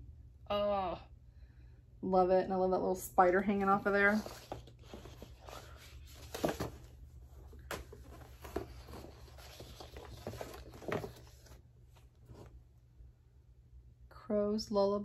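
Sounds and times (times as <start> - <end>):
paper rustling: 3.4 - 12.6.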